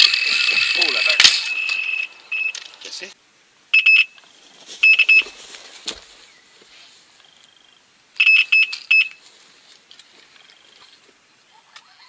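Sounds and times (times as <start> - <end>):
bite alarm rapid beeps: 0.0 - 2.6, 3.8 - 4.1, 4.8 - 5.3, 8.2 - 9.2.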